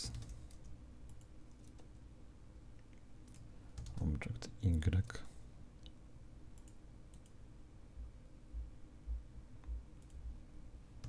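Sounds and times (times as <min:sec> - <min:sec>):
computer mouse clicks: 0:00.1 - 0:02.0, 0:06.6 - 0:07.4, 0:10.0 - 0:10.2
soft low thumps: 0:08.0 - 0:10.4.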